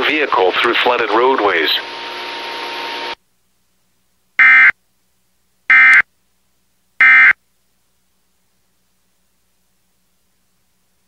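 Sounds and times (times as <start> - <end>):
screeching digital data tones: 5.7 - 6.0.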